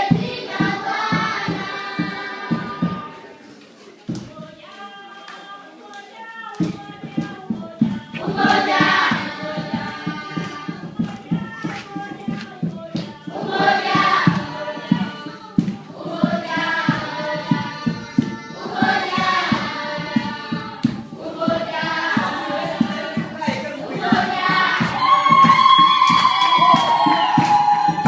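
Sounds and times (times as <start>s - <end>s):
quick steady beat: 0.0s - 3.2s, 6.5s - 28.0s
choir singing: 0.0s - 3.6s, 7.1s - 28.0s.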